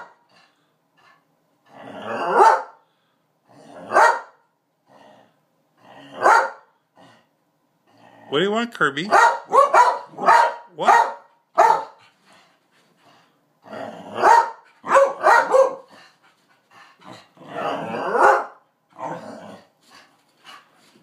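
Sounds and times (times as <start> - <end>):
dogs barking: 2.2 - 2.8, 3.9 - 4.4, 6.2 - 6.7, 9.1 - 12.0, 14.2 - 15.9, 18.0 - 18.6.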